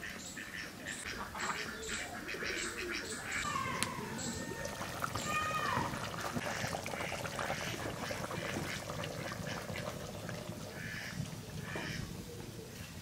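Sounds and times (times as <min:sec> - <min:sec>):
curry bubbling in pot: 0:03.4 - 0:12.0.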